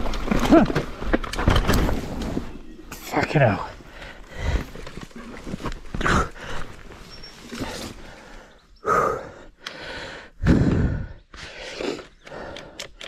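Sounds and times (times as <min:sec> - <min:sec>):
person groaning and breathing hard: 0:06.0 - 0:06.6, 0:08.8 - 0:12.8.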